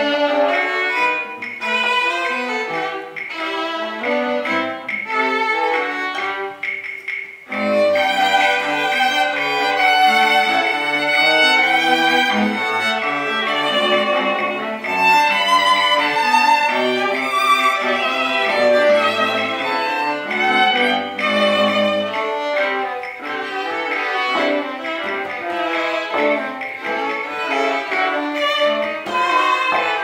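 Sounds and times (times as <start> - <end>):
violins playing tango: 0.0 - 30.0
cello bass notes: 7.5 - 30.0.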